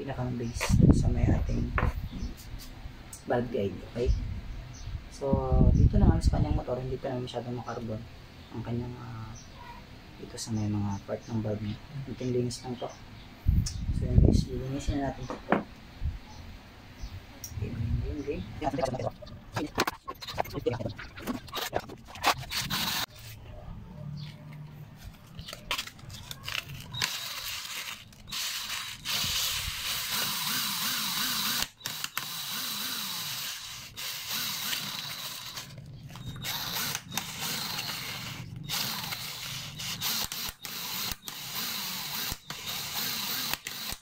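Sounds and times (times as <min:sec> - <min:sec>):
sandpaper scraping metal: 0:19.8 - 0:23.4
cordless drill spinning: 0:21.2 - 0:23.1, 0:26.5 - 0:44.0.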